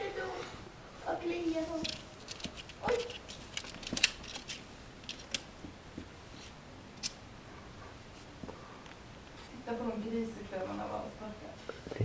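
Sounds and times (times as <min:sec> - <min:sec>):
ferret scratching and rustling: 0:01.3 - 0:05.6.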